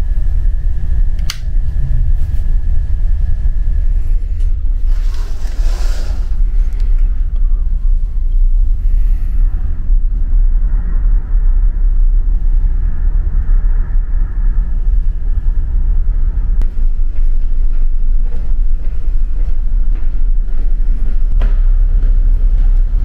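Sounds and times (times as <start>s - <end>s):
ferry engine low rumble: 0.0s - 23.0s
hiss: 4.8s - 6.7s.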